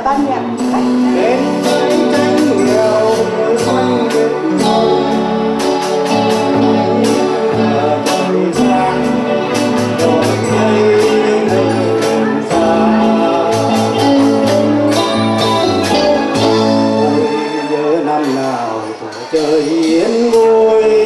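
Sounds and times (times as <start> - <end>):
person singing into microphone: 0.0 - 15.4
drum kit steady beat: 0.0 - 20.6
electric guitar: 0.0 - 21.0.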